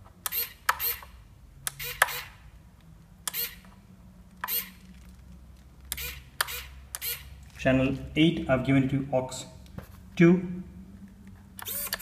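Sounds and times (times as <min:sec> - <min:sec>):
servo whirring: 0:00.2 - 0:02.4, 0:03.2 - 0:03.8, 0:04.4 - 0:04.9, 0:05.9 - 0:07.3, 0:11.6 - 0:12.0.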